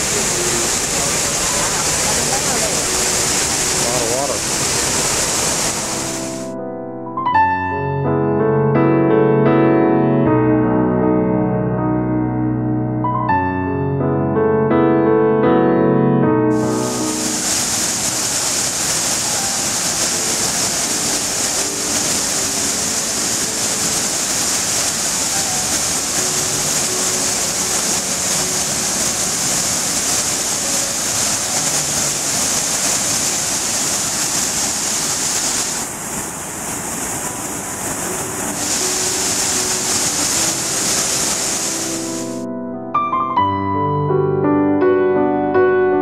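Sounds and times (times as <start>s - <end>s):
waterfall rushing: 0.0s - 6.6s, 16.5s - 42.5s.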